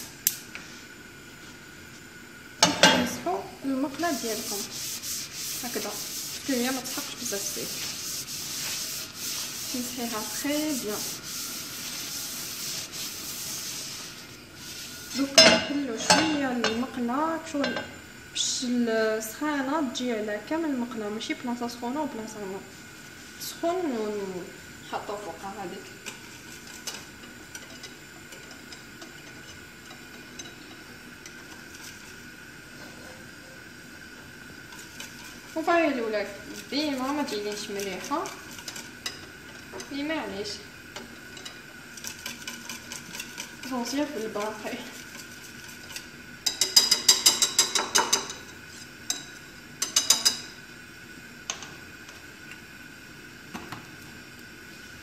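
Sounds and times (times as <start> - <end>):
whisk ticking against glass bowl: 41.3 - 48.3.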